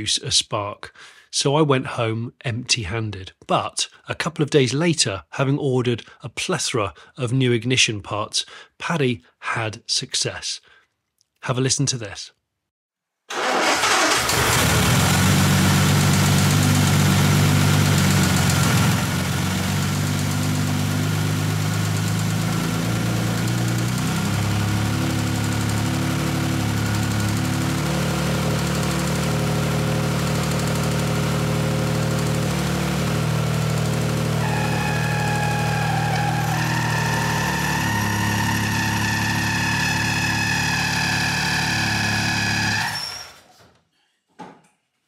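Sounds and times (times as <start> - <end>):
car engine idling: 13.8 - 40.4.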